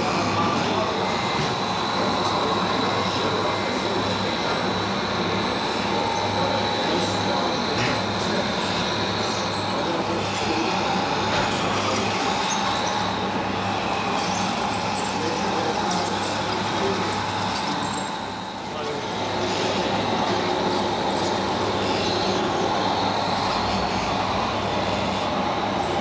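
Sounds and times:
model trucks running: 0.0 - 26.0
thin high whine: 0.0 - 26.0.

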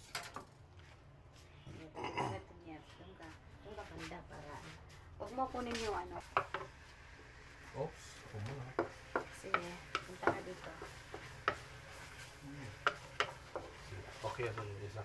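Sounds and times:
wooden spatula stirring onions in wok: 5.9 - 15.0
spatula knocks and scrapes on pan: 6.3 - 6.8, 8.7 - 14.8.

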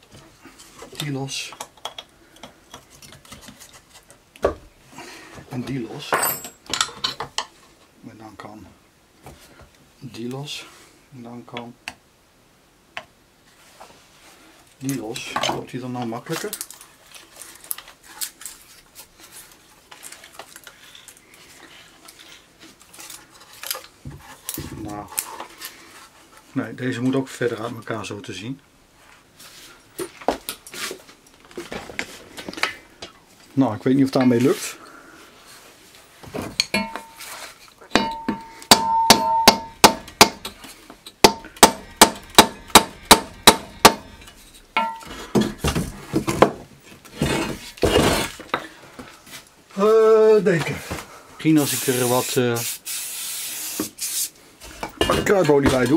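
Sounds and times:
mallet striking wooden dowel: 37.9 - 40.5, 41.2 - 44.1.

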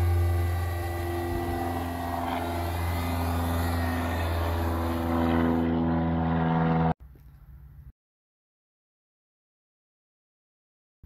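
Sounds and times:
drone propellers buzzing: 0.0 - 7.0.

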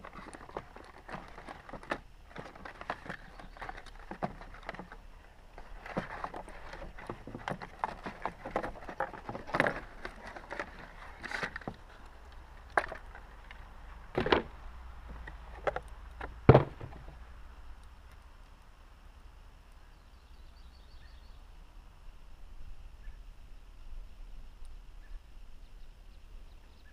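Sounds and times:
cardboard and paper rustling: 0.0 - 14.5.

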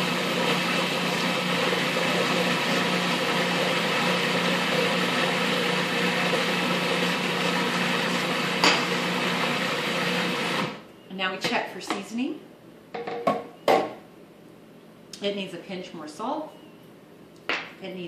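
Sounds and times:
food processor motor humming: 0.0 - 10.8.

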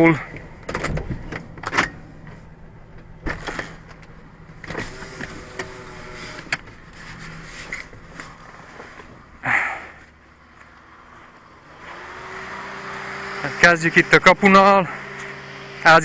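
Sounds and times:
car engine idling: 0.0 - 12.1
car door clicks and knocks: 0.6 - 2.0.

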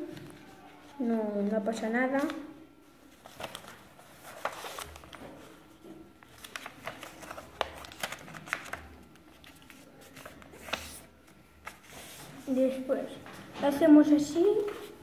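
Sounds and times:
paper rustling and crackling: 3.0 - 13.5.

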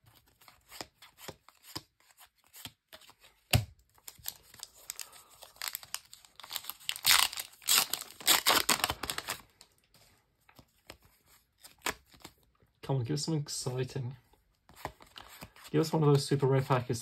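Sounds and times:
foil packet crinkling: 4.0 - 9.7.

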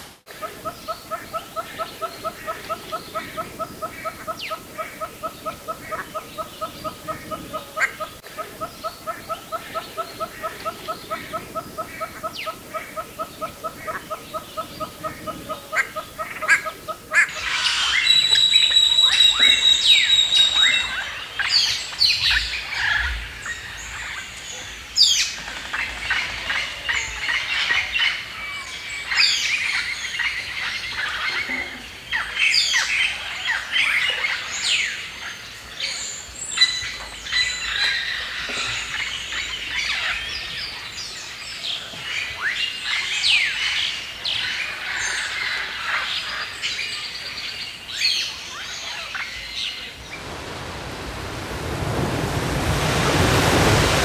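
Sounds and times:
birds chirping and calling: 0.4 - 24.2.

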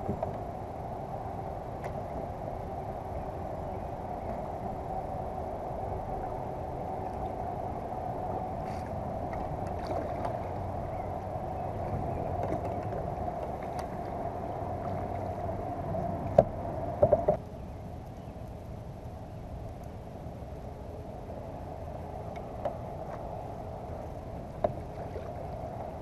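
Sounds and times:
paddle knocking on kayak hull: 16.3 - 17.4.

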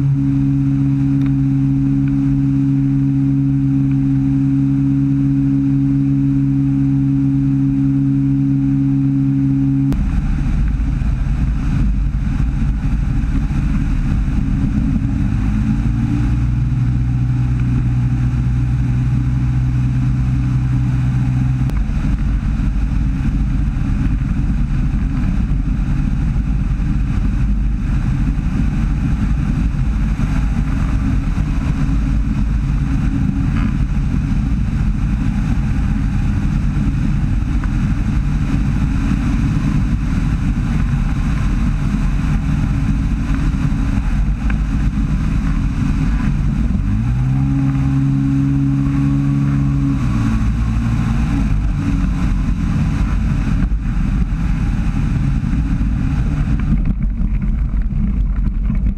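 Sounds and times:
microlight engine running: 0.0 - 58.9
wind rush on microphone: 0.0 - 58.9.

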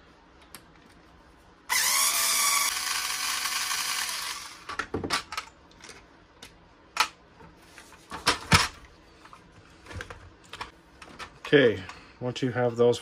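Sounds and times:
electric screwdriver running: 1.7 - 4.7.

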